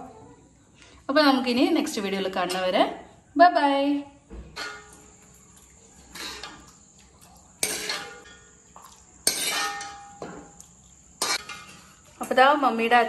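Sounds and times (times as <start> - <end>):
steel ladle clinking on metal: 9.2 - 10.5.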